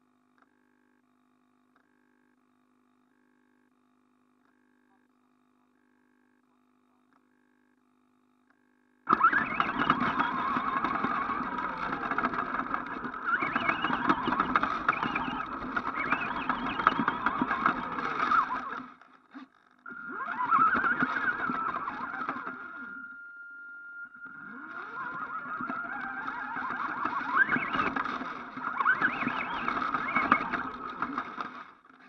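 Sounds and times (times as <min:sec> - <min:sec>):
electric motor whine: 0:09.1 - 0:19.0, 0:19.8 - 0:31.9.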